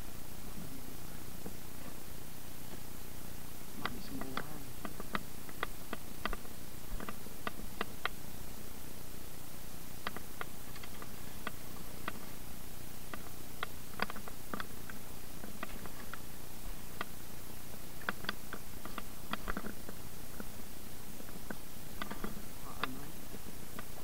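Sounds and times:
steady hiss: 0.0s - 24.0s
light clicks and taps: 3.8s - 8.2s.

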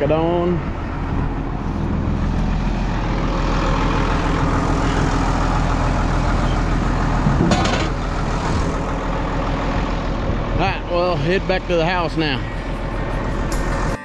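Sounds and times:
vehicle engine running: 0.0s - 14.0s.

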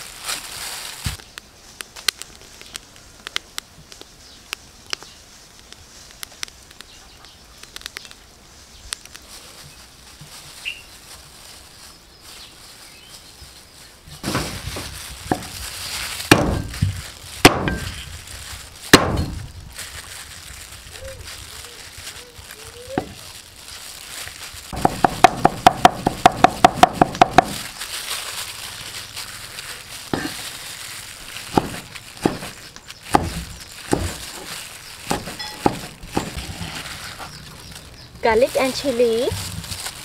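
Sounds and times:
faint clicks and crackles: 1.2s - 10.7s
cleaver chopping on wooden board: 16.3s - 16.7s, 17.4s - 17.9s, 18.9s - 19.4s, 24.8s - 27.6s, 30.2s - 30.4s, 31.5s - 32.5s, 33.1s - 34.2s, 35.1s - 36.4s.

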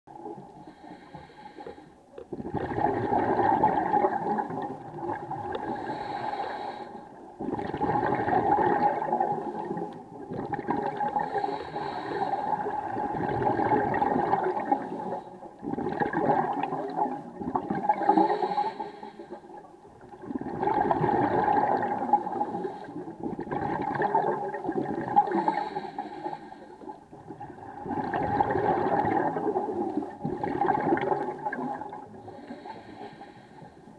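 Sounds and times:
underwater regulator breathing bubbles: 0.6s - 19.4s.

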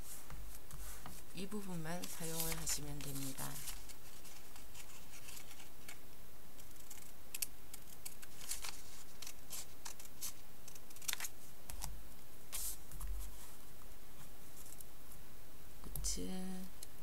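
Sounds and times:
scissors snipping paper: 6.6s - 11.9s.

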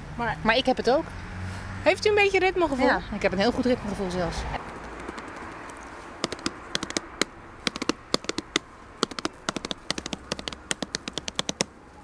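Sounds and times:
hands tapping rhythm: 4.7s - 11.7s.

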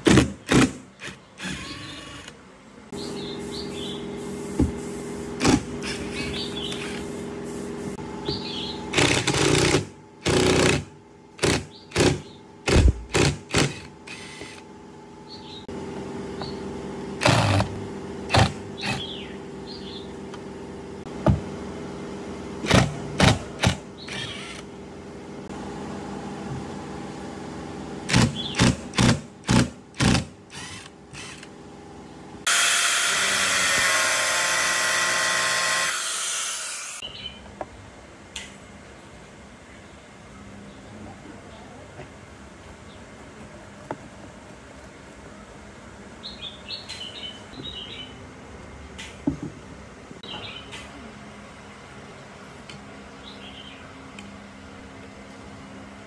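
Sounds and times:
power drill whirring: 0.5s - 2.4s, 8.9s - 14.7s, 23.6s - 24.7s, 29.4s - 31.5s, 32.5s - 37.0s
angle grinder running: 32.5s - 37.0s.

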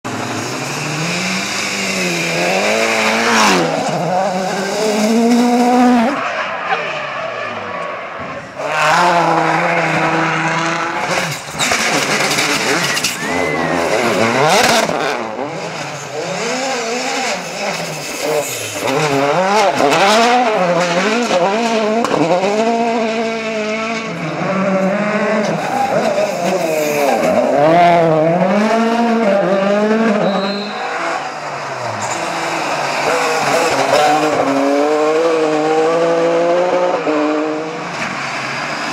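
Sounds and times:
rally car engines revving hard: 0.1s - 38.9s
tyres skidding on loose ground: 0.1s - 38.9s.

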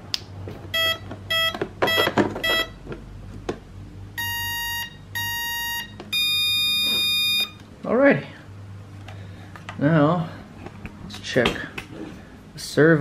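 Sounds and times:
electronic beeps: 0.7s - 2.8s, 4.2s - 7.6s.

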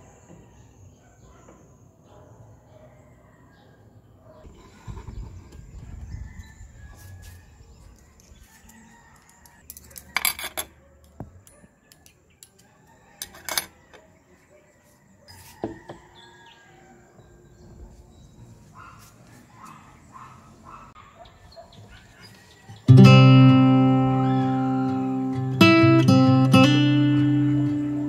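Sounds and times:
cutlery and mugs clinking on plates: 9.7s - 10.7s, 13.2s - 13.8s
distant birds calling: 17.2s - 28.0s.

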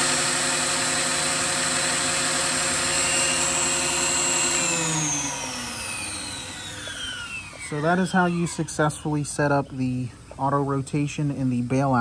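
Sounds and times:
rc helicopter rotor whine: 0.0s - 9.6s.

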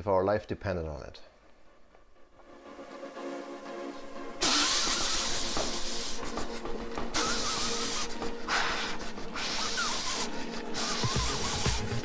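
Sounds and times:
stationary bike rushing hiss: 4.4s - 6.6s, 7.2s - 12.0s.

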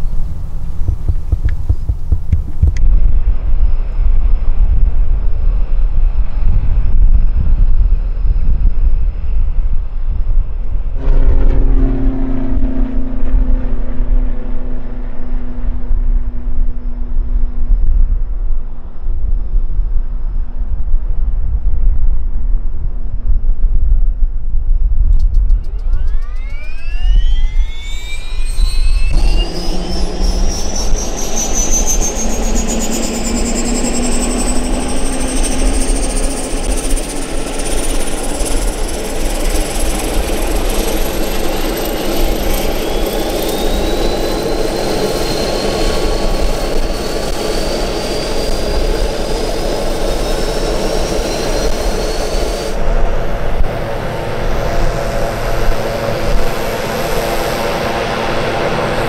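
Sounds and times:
engine and propeller drone: 0.0s - 23.7s, 24.3s - 59.0s
turboprop engine whine rising: 0.0s - 59.0s
loud rushing noise: 10.8s - 19.0s, 25.6s - 59.0s.

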